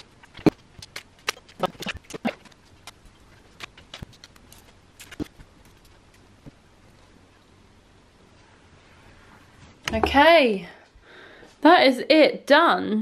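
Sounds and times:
plastic sticker rustling and clicking: 0.3 - 6.2.

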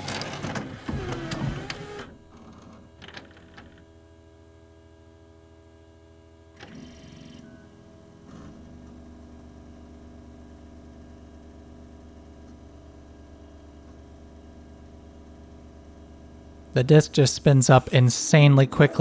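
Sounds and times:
disc tray motor whirring: 0.0 - 4.1, 6.4 - 17.4
disc spinning whir: 0.0 - 19.0.

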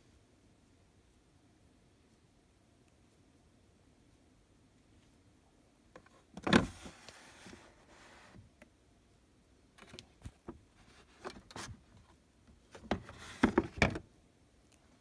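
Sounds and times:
knocks and rattles of drawer: 6.4 - 7.0, 12.8 - 14.0
plastic drawer clunk: 6.4 - 7.0, 12.8 - 14.0
plastic drawer scraping slide: 6.4 - 8.4, 12.8 - 14.0.

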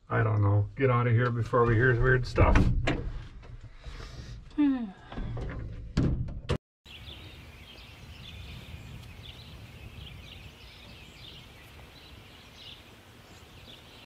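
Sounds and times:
low wind rumble: 6.9 - 14.0
small birds chirping: 6.9 - 14.0.

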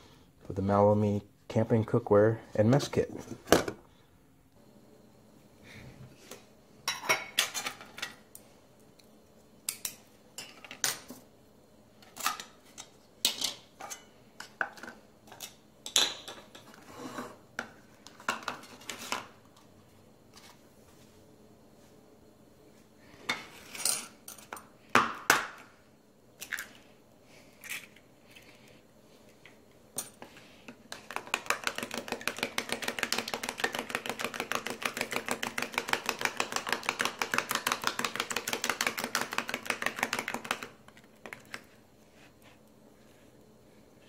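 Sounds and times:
fork beating egg in bowl: 30.0 - 41.7.

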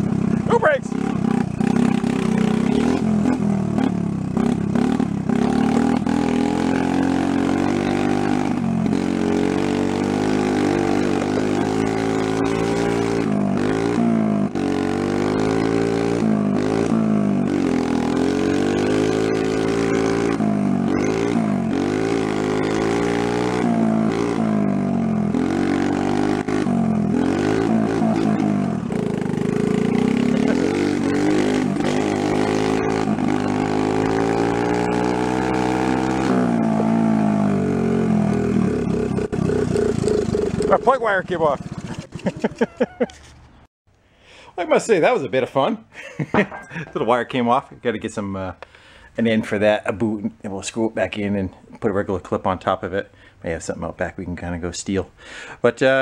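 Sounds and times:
small motorbike engine revving: 0.0 - 43.6.

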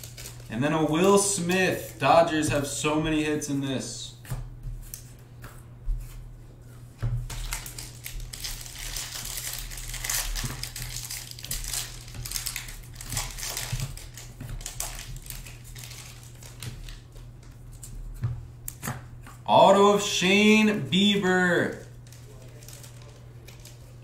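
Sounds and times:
foil wrapper crinkling: 0.0 - 2.0, 7.2 - 17.1, 21.6 - 24.0.

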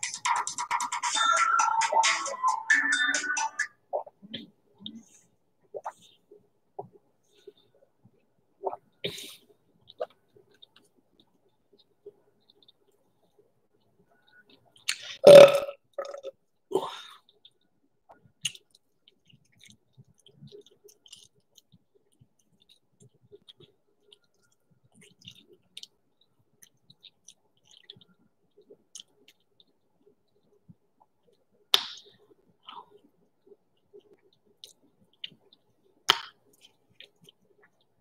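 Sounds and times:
woman burping: 15.2 - 16.3
lip-smacking and mouth clicks: 17.2 - 38.0.

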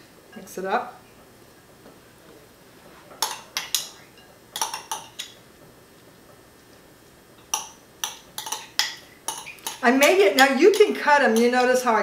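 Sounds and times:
metal spoon clinking against glass bowl: 7.5 - 9.8.

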